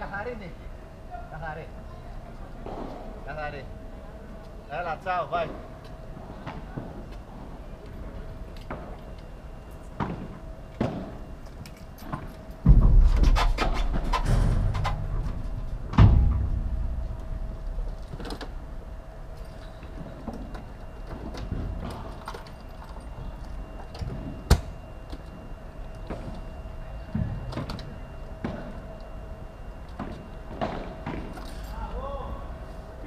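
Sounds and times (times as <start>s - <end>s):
faint steady hum: 0.0s - 33.0s.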